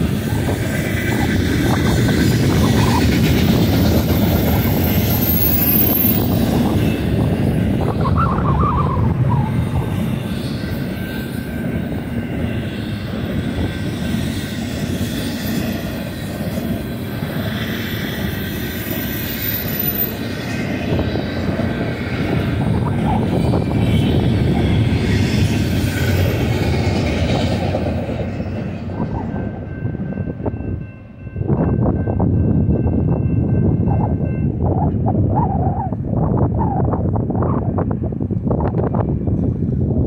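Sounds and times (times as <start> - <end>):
steel wheels rumbling on rail: 0.0 - 40.0.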